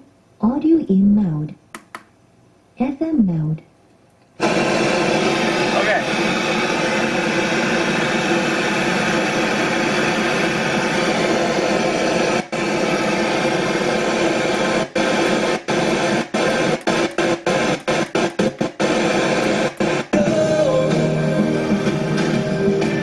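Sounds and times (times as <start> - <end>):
radio static hissing: 4.4 - 21.3.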